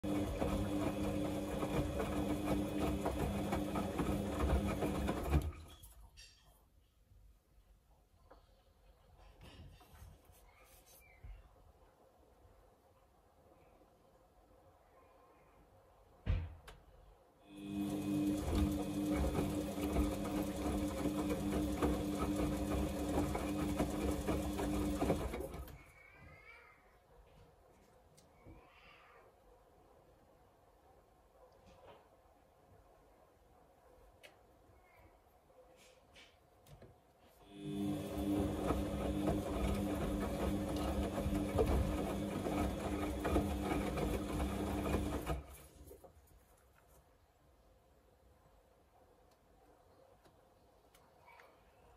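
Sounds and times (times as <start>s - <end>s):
washing machine motor hum: 0.0s - 5.7s, 17.5s - 25.8s, 37.4s - 46.1s.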